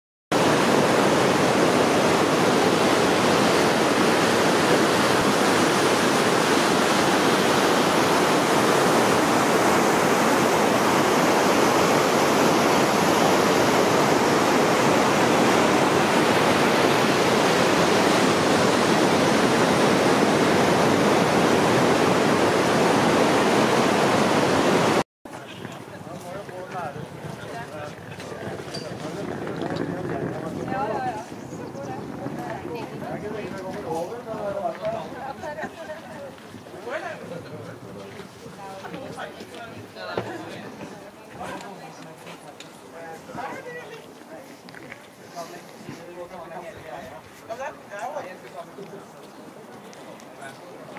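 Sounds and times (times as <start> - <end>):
river rapids rushing over rocks: 0.4 - 25.0.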